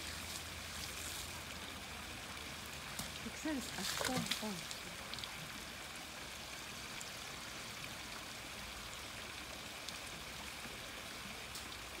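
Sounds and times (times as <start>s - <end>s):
water trickling and splashing: 0.0s - 12.0s.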